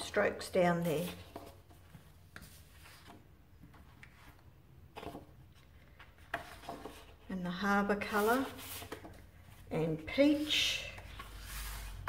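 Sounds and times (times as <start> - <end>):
paper rustling: 8.0 - 9.2.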